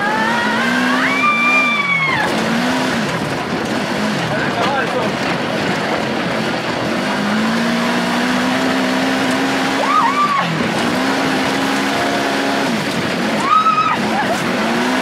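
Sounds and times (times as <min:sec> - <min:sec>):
buggy engine running hard: 0:00.0 - 0:15.0
constant rushing noise: 0:00.0 - 0:15.0.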